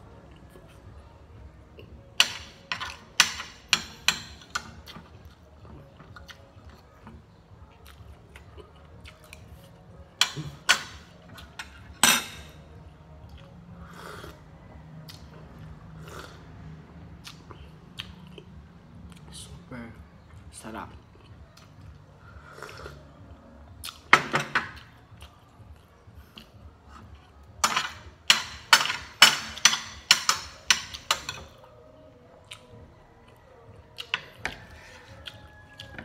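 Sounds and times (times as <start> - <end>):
chewing: 4.8 - 9.8, 32.3 - 36.0
metal spoon clinking on a plate: 10.2 - 12.6, 27.6 - 31.6.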